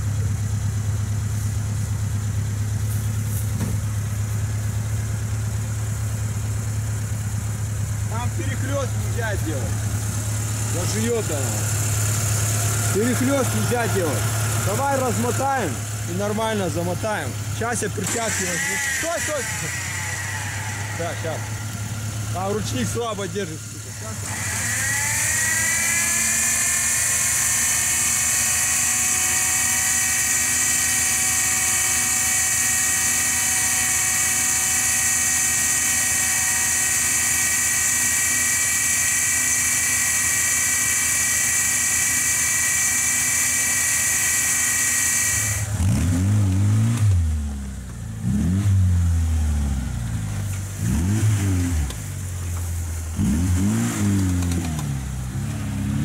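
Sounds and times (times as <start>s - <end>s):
engine revving: 7.1s - 56.0s
electric winch whining: 17.8s - 45.8s.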